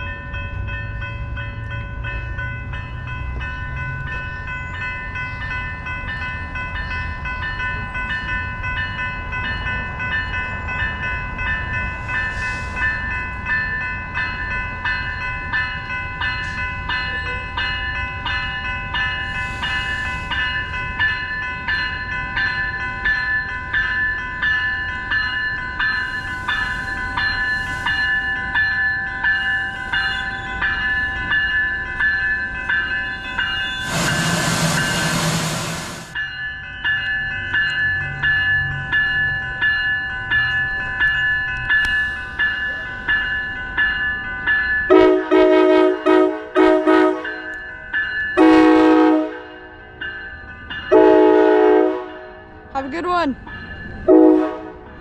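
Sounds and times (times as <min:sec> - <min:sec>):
railroad crossing bells ringing: 0:00.0 - 0:55.0
train rumble: 0:00.0 - 0:55.0.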